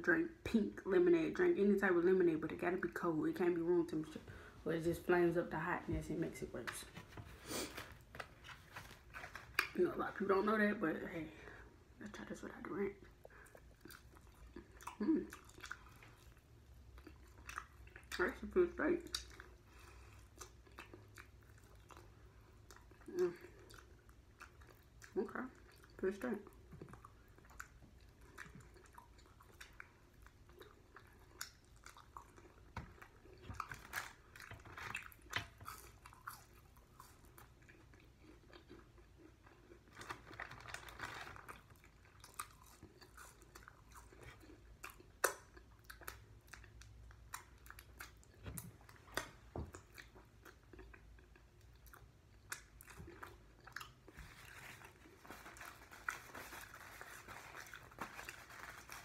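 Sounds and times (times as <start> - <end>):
wet chewing mouth sounds: 13.1 - 40.0, 41.6 - 55.2
lip and tongue clicks: 42.2 - 54.0.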